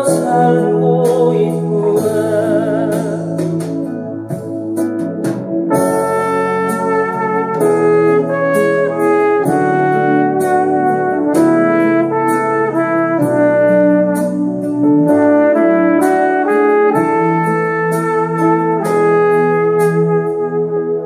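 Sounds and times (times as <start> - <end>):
drum beat and bass: 0.0 - 20.4
horn-like melody: 5.6 - 21.0.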